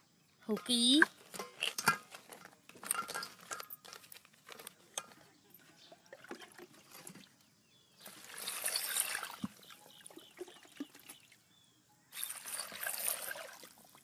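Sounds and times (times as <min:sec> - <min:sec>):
water pouring into a metal bowl: 0:08.0 - 0:11.2, 0:12.1 - 0:14.0.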